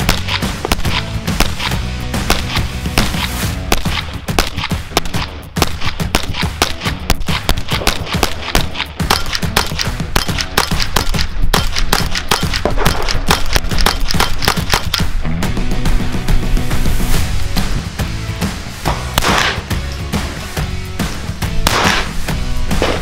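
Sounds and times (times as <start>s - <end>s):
rifle fired rapidly: 0.0s - 15.1s, 18.9s - 19.7s, 21.6s - 23.0s
background music: 0.0s - 23.0s.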